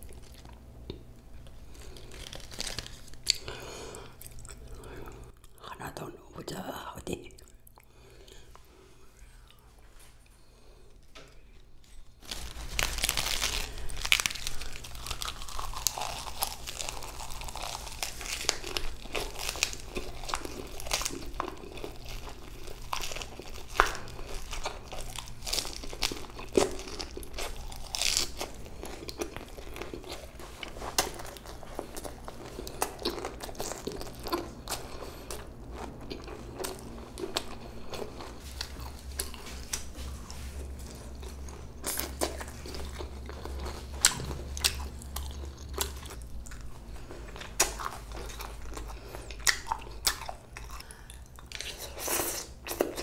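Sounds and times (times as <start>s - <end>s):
person chewing and crunching: 0.0s - 53.0s
crinkling and rustling: 11.1s - 35.2s.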